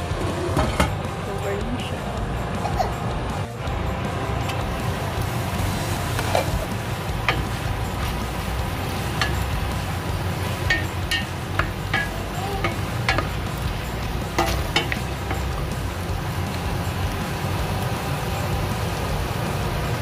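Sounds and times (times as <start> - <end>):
meat frying: 3.6 - 20.0
wooden spoon scraping a pot: 6.1 - 6.7.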